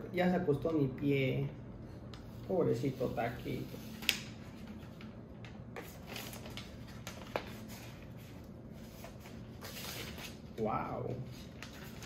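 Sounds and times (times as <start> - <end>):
packaging rustling: 5.8 - 10.5.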